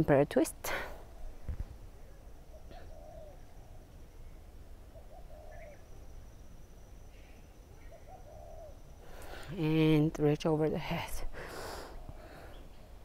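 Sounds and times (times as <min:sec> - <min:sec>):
bird cooing: 0:02.0 - 0:03.8, 0:04.9 - 0:06.0, 0:07.1 - 0:09.4.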